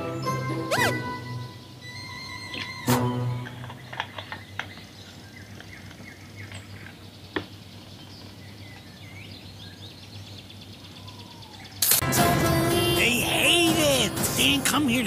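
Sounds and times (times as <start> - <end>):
bird chirps: 3.7 - 11.8.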